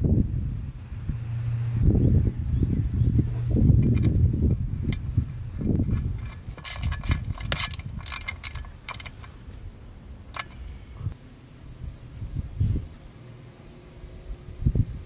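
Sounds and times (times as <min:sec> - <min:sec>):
low rumble: 0:00.0 - 0:13.2
ratchet clicking: 0:03.7 - 0:09.5, 0:10.3 - 0:10.8.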